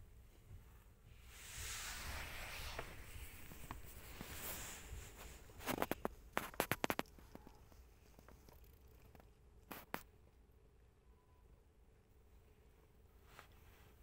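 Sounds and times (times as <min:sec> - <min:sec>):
soft rustling: 0:00.0 - 0:10.1, 0:12.3 - 0:14.0
cat crunching dry kibble: 0:05.6 - 0:10.0.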